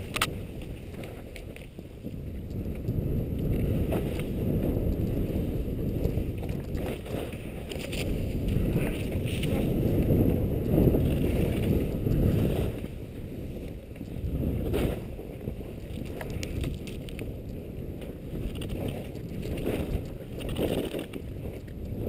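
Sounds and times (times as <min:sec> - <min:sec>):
faint clicks: 0:00.0 - 0:05.2, 0:13.6 - 0:14.2
wind rushing over microphone: 0:00.0 - 0:22.0
skis sliding on snow: 0:00.4 - 0:22.0.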